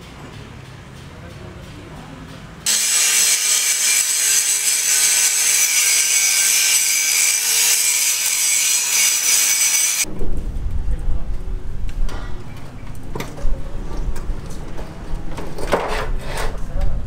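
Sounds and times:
angle grinder grinding steel: 0:02.7 - 0:10.1.

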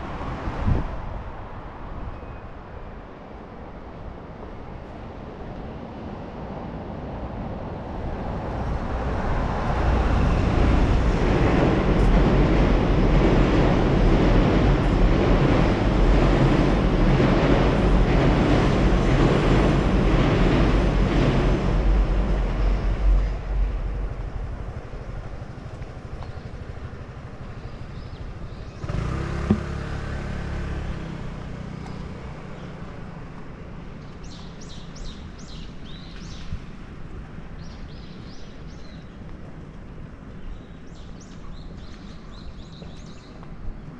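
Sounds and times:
vehicle passing: 0:28.8 - 0:33.0
sharp knock: 0:29.5 - 0:29.8.

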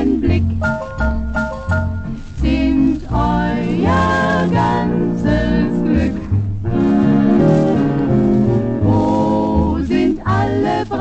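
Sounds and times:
vocal group singing: 0:00.0 - 0:00.8, 0:02.4 - 0:11.0
dance orchestra playing: 0:00.0 - 0:02.4, 0:03.9 - 0:09.5.

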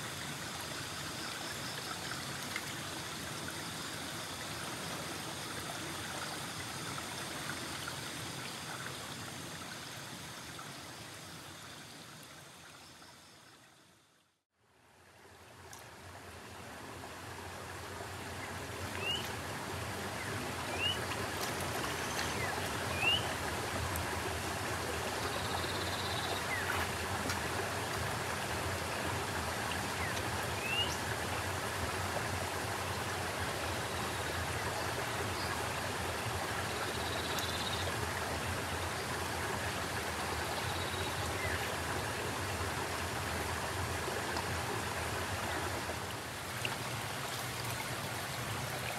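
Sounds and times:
river water rushing: 0:14.9 - 0:48.9.

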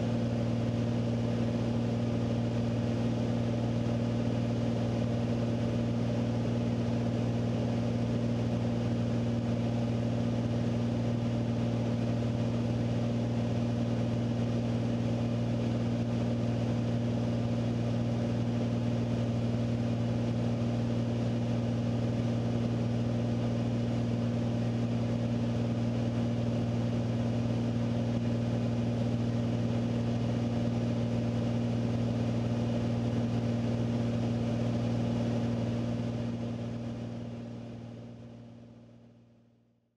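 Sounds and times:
propeller plane engine droning: 0:00.0 - 0:39.0.

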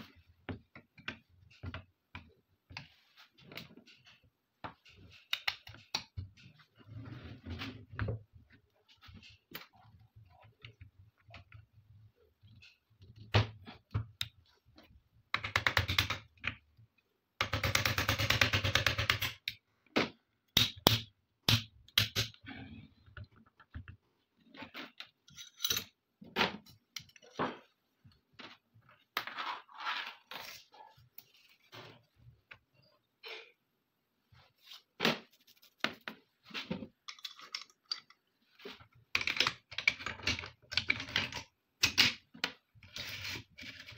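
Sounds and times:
metal gun parts clicking: 0:37.1 - 0:38.2.

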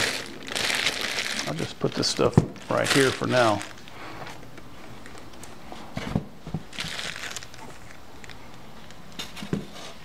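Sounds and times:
packaging rustling: 0:00.0 - 0:04.0, 0:06.6 - 0:08.4.

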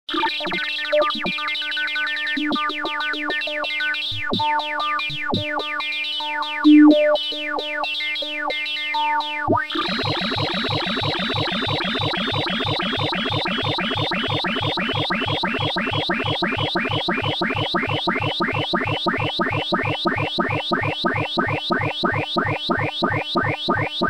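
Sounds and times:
computer sine-wave beeps: 0:09.8 - 0:23.9.

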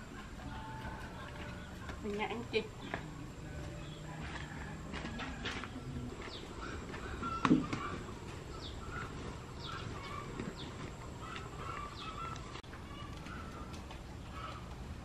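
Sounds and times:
small birds chirping: 0:05.6 - 0:15.0.

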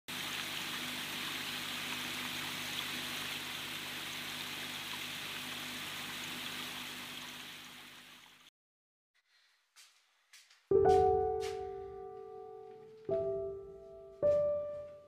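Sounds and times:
water trickling over stones: 0:00.1 - 0:08.5.

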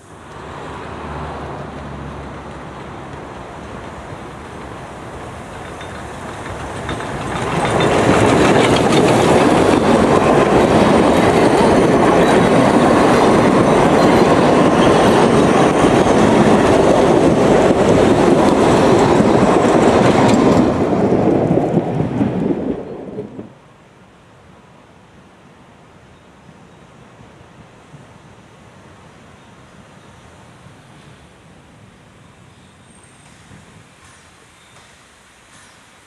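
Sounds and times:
steam locomotive passing: 0:00.0 - 0:36.0
coaches rolling on rails: 0:00.3 - 0:23.5.

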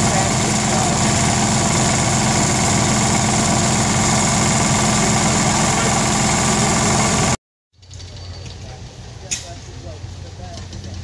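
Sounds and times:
stationary engine running steadily: 0:00.0 - 0:07.4.

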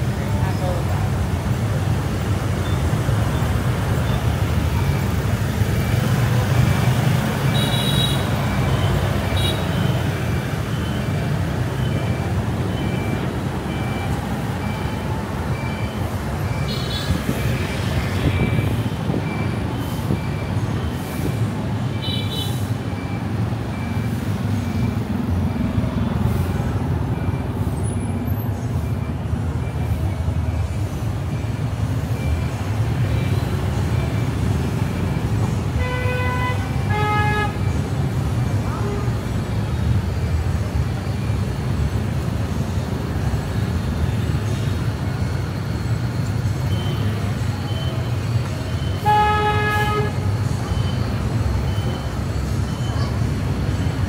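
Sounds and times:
engine and road rumble: 0:00.0 - 0:54.0
faint high beep: 0:10.7 - 0:20.9, 0:27.1 - 0:34.4, 0:46.6 - 0:49.0, 0:50.6 - 0:53.3.

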